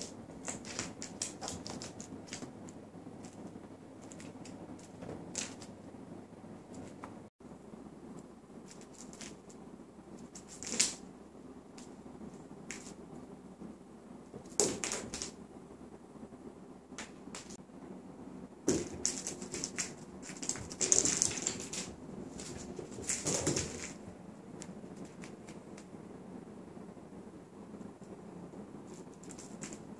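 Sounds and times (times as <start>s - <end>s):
kitten paws skittering on wood: 0.0s - 5.8s, 18.7s - 25.9s.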